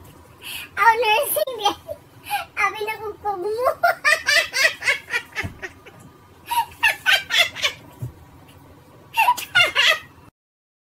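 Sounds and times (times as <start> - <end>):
woman laughing hard: 3.8 - 7.9, 9.2 - 10.1.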